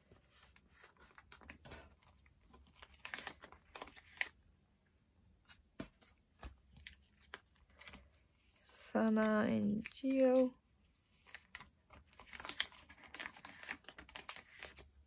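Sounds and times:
plastic sleeves crinkling: 0.0s - 4.4s, 5.9s - 15.0s.

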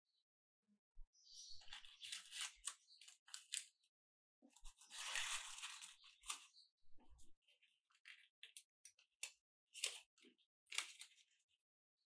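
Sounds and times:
paper cupcake cases crinkling: 1.6s - 3.8s, 4.6s - 6.7s
paper rustling in cardboard box: 4.7s - 6.5s.

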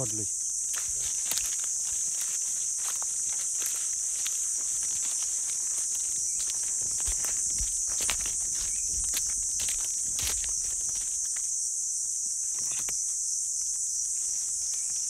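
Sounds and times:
footsteps on forest floor: 0.0s - 11.6s
high-pitched insect chorus: 0.0s - 15.0s.

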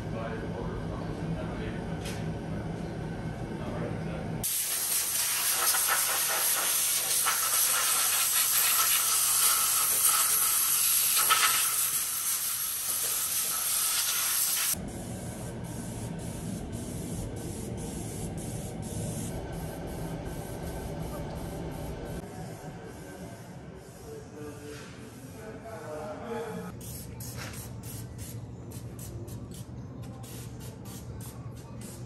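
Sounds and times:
spray gun hissing: 4.4s - 14.8s.

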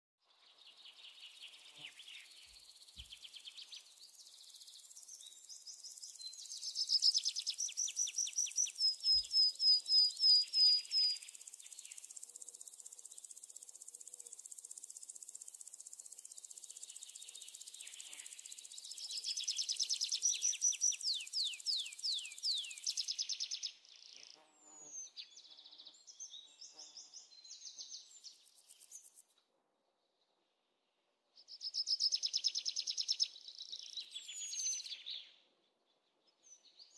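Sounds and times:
birds singing trills: 0.6s - 12.3s, 16.2s - 29.2s, 31.4s - 35.4s
high insect buzz: 11.2s - 18.8s.

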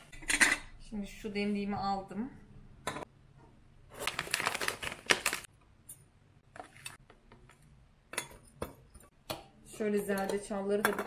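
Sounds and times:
tea pouch crinkling: 4.0s - 5.5s.

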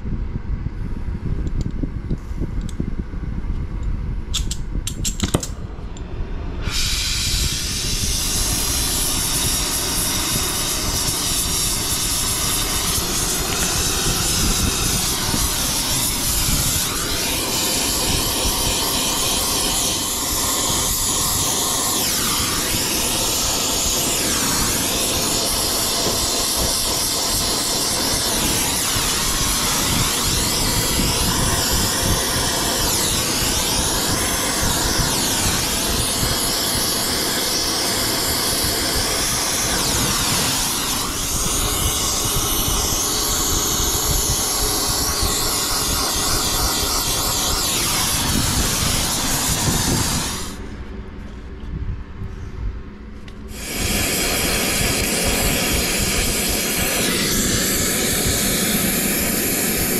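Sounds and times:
gas torch igniter clicks: 3.8s - 37.9s
gas torch flame hissing: 4.3s - 50.8s, 53.3s - 59.9s.

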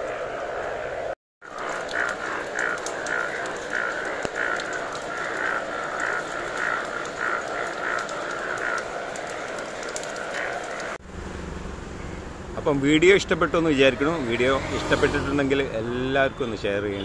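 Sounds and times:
background chorus of frogs: 0.0s - 11.0s
frog croaks: 1.4s - 11.0s.

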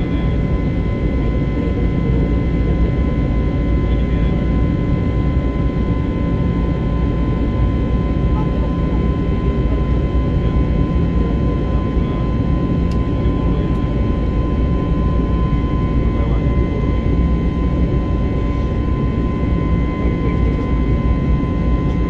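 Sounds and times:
jet engines and airflow rushing: 0.0s - 22.0s
steady whine: 0.0s - 22.0s.

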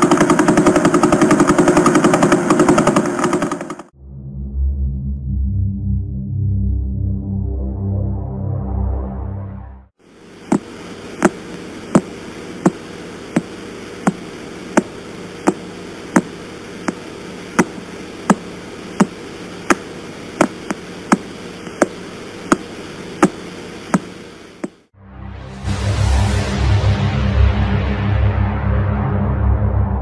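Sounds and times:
static hiss: 10.0s - 24.9s.

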